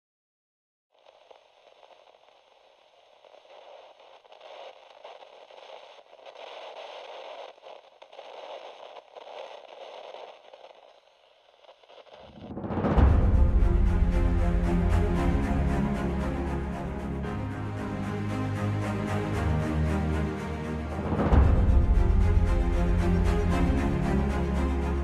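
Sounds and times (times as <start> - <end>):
old film crackle and hiss: 0.9 - 12.5
low rising swell: 12.4 - 25.0.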